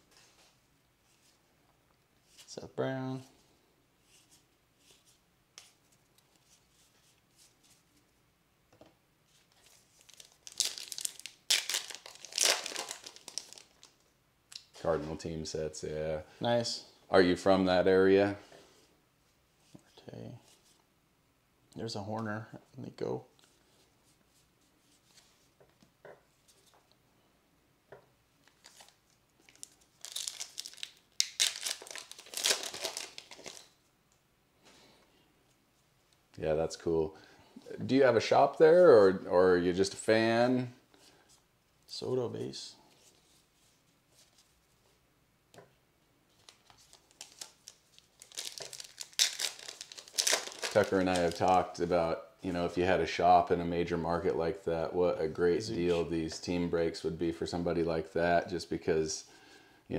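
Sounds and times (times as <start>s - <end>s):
foil wrapper crinkling and tearing: 9.9s - 14.0s, 28.5s - 33.8s, 46.4s - 51.8s.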